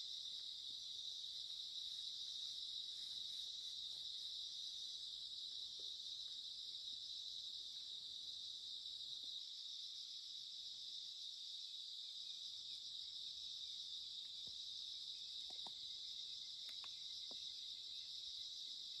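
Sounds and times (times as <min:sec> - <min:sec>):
insects chirping: 0:00.0 - 0:19.0
faint ticks: 0:15.4 - 0:15.8, 0:16.6 - 0:17.5.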